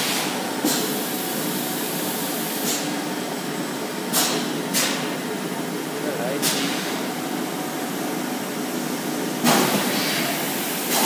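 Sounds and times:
machine running with steady hiss: 0.0 - 11.0.

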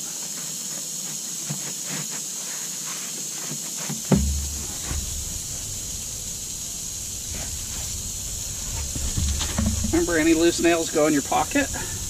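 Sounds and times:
steady high hiss: 0.0 - 12.0
knocks on roof: 4.0 - 10.8
sharp thump: 4.0 - 10.8
low rumble: 4.2 - 12.0.

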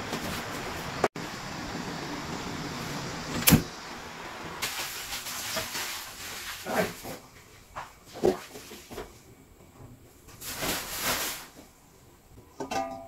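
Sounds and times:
gas burner running: 0.0 - 5.2
steam hissing: 0.0 - 6.9.

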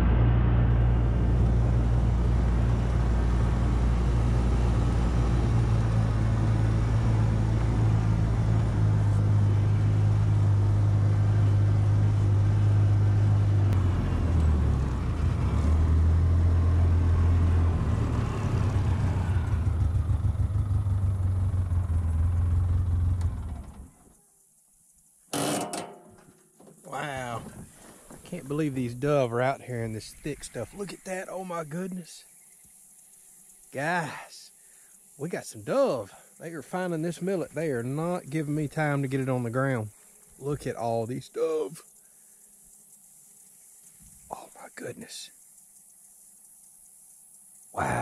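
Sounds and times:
vehicle engine running: 0.0 - 24.0.

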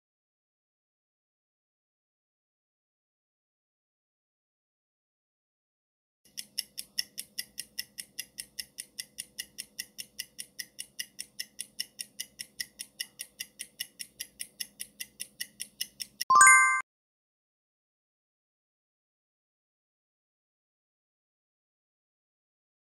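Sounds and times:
clock ticking fast: 6.3 - 16.3.

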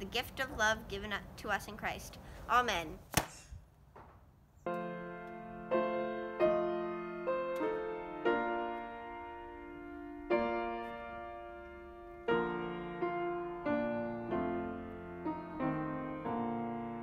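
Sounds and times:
solo piano chords: 4.7 - 17.0.

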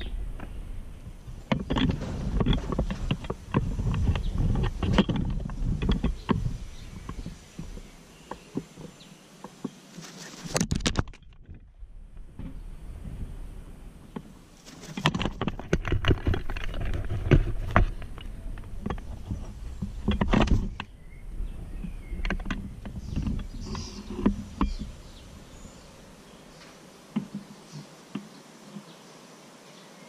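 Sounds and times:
wire bird feeder knocking and rattling: 1.2 - 7.9, 14.6 - 20.9.

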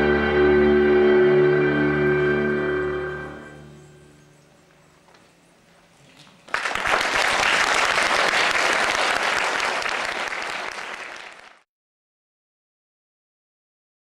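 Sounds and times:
audience applauding: 6.4 - 11.7.

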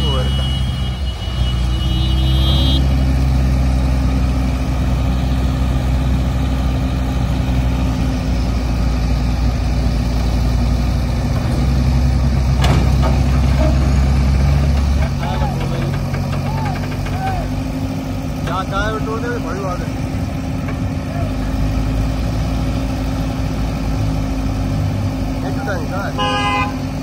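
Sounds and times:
diesel engine running under load: 0.0 - 27.0.

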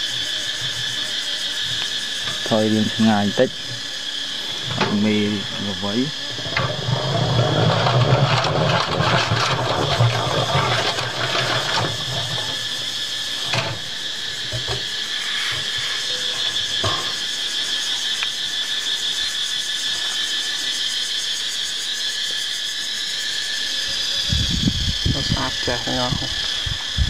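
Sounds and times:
honey extractor rattling and whirring: 0.0 - 18.6, 24.2 - 27.0.

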